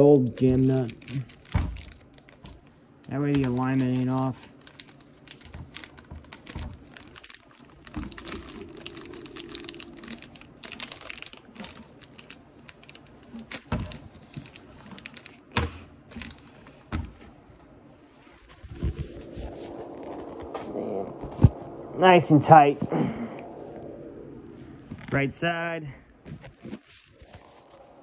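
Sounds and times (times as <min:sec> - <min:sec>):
plastic bag crinkling: 0:00.2 - 0:16.8.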